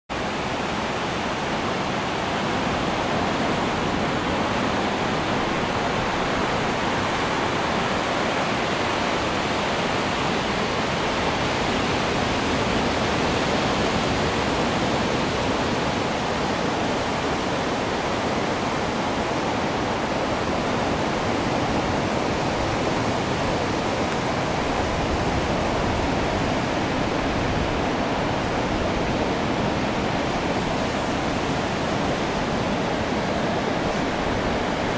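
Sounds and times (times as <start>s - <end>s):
surf washing: 0.1s - 34.9s
strong wind rushing: 0.2s - 34.9s
wind buffeting microphone: 0.2s - 34.9s.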